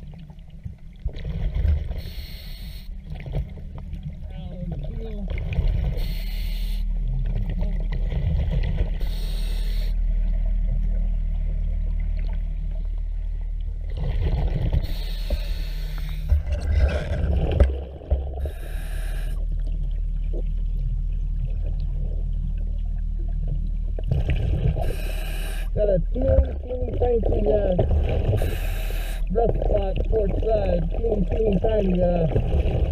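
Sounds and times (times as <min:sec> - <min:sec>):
exhaled bubbles rushing underwater: 0:00.0 - 0:06.2, 0:13.7 - 0:32.9
low hum: 0:00.0 - 0:32.9.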